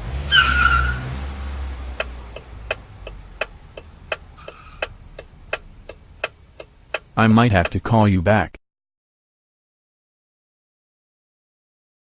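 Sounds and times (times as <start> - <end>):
turn signal ticking: 0.0 - 8.3
cartoon car engine rumbling: 0.0 - 8.5.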